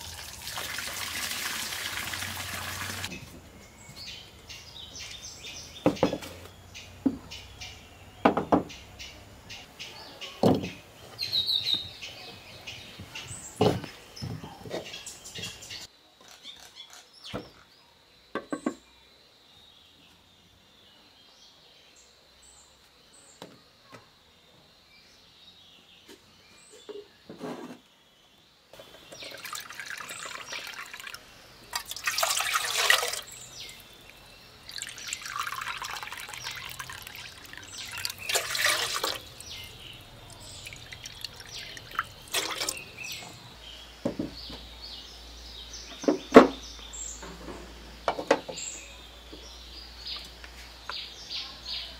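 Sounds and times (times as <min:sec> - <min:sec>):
water pouring into a pot: 0:00.0 - 0:03.1, 0:29.1 - 0:33.9, 0:34.6 - 0:43.2.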